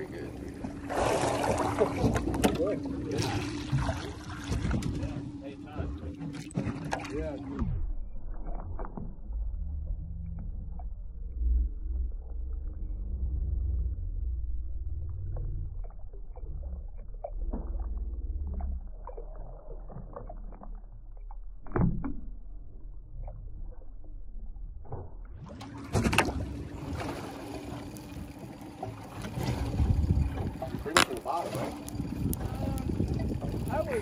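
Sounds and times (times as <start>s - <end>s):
low rumble: 0.0s - 34.0s
muffled water sloshing and gurgling: 0.0s - 34.0s
wind: 0.0s - 34.0s.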